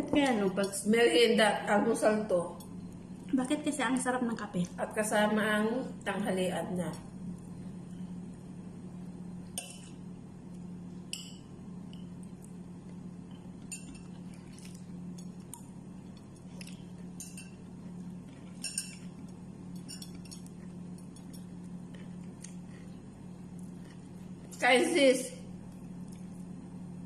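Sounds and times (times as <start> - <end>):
steady low hum: 0.0 - 27.0
clinks of food and plate: 18.4 - 19.2.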